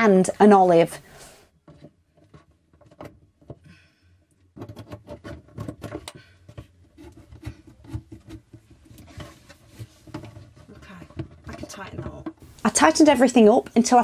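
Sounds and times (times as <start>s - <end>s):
small clicks and rubbing: 1.6s - 3.6s.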